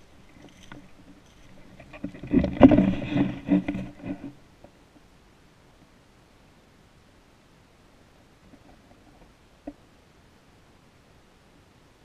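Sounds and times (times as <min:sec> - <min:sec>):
rustling and scraping: 0:00.0 - 0:04.8.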